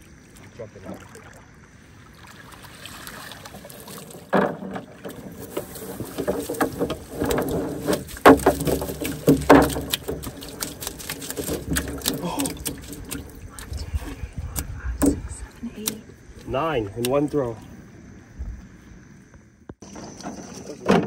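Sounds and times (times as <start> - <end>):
water splashing and dripping: 0.0 - 17.7
net knocking against plastic tub: 4.3 - 13.2.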